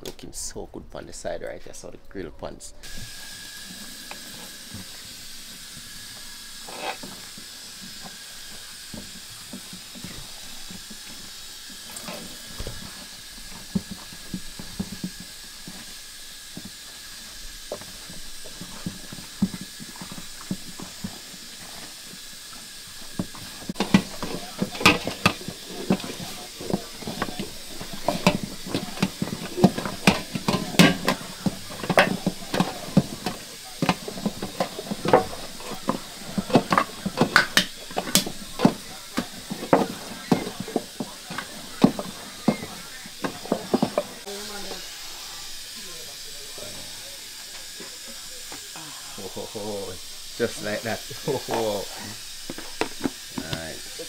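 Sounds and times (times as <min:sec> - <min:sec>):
steady hiss: 0:00.0 - 0:54.0
wooden spoon stirring flour: 0:02.8 - 0:54.0
dough slapping metal bowl: 0:03.6 - 0:44.8.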